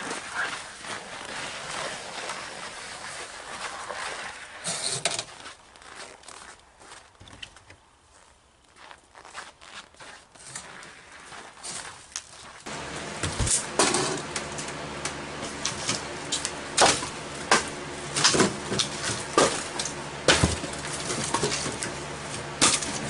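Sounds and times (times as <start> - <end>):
wheelbarrow being pushed: 0.0 - 5.6, 10.4 - 23.0
boots crunching over snow: 0.0 - 23.0.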